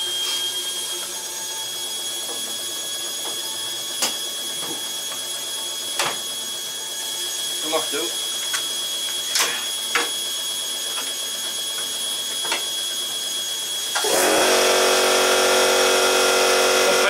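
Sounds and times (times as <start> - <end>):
washing machine humming and whirring: 0.0 - 17.0.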